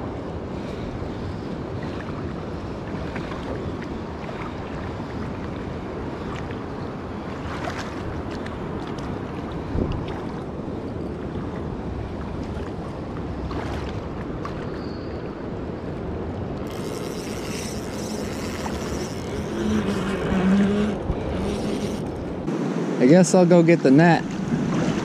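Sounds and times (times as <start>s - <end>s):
wind rumbling on microphone: 0.0s - 22.5s
fast river current rushing: 16.7s - 23.3s.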